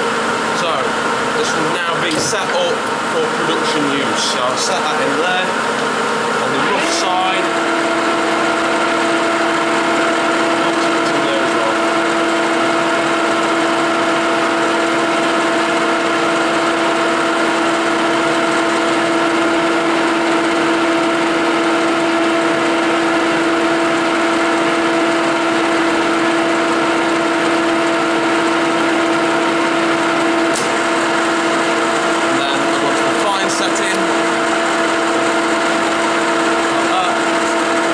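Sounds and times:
lathe humming with drive whine: 0:00.0 - 0:37.9
sharp click: 0:30.5 - 0:30.8.

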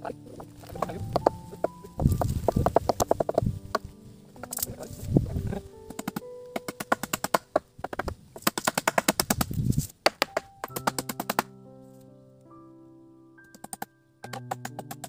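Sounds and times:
soft keyboard music: 0:00.0 - 0:08.5, 0:09.9 - 0:15.0
sharp knocks and clicks: 0:00.7 - 0:03.8, 0:05.9 - 0:11.5, 0:13.5 - 0:15.0.

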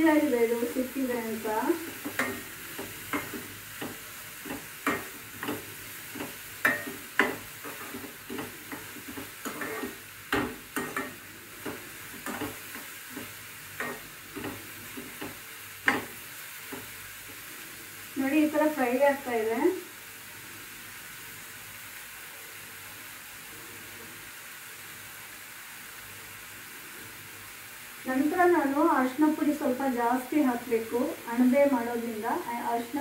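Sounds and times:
onions sizzling in oil: 0:00.0 - 0:33.0
spoon scraping and clinking on pan: 0:02.0 - 0:16.1.

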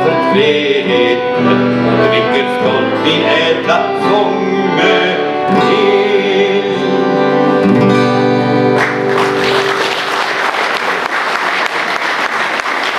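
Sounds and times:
accordion and acoustic guitar: 0:00.0 - 0:09.8
audience applause: 0:08.8 - 0:12.9.

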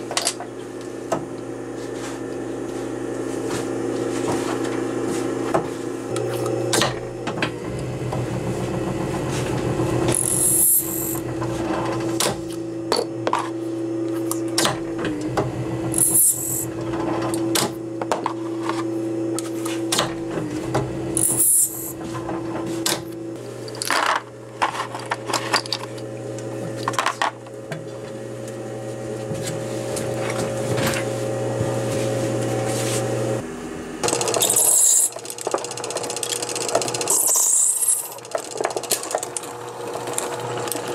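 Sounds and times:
lathe motor hum: 0:00.0 - 0:12.9, 0:27.5 - 0:40.9
tool clicks and scrapes: 0:34.1 - 0:35.6, 0:36.2 - 0:39.2.

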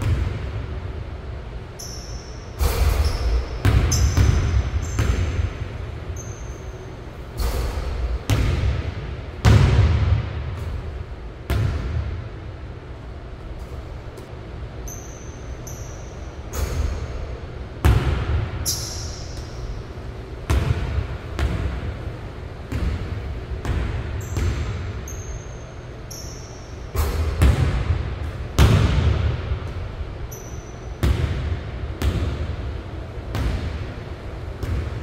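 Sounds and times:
basketball bouncing on hardwood floor: 0:00.0 - 0:00.4, 0:03.6 - 0:05.5, 0:08.3 - 0:08.8, 0:09.4 - 0:10.8, 0:11.5 - 0:12.1, 0:20.5 - 0:21.8, 0:22.7 - 0:24.8, 0:27.0 - 0:28.0, 0:28.6 - 0:29.3, 0:31.0 - 0:32.5, 0:34.6 - 0:35.0
short high squeaks: 0:06.2 - 0:07.6, 0:14.8 - 0:16.8, 0:25.1 - 0:26.8, 0:30.3 - 0:30.9.

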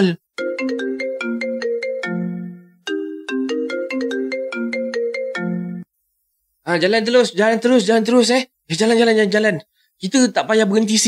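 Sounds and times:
phone ringtone melody: 0:00.4 - 0:05.9.

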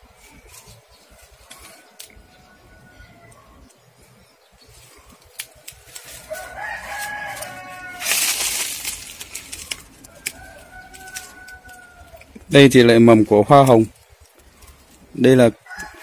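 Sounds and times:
rooster crowing: 0:01.5 - 0:03.6, 0:06.1 - 0:12.4, 0:15.6 - 0:16.0.

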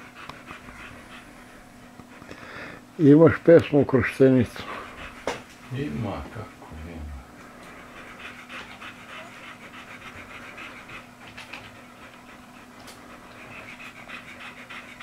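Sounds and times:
dogs panting: 0:00.0 - 0:15.0.

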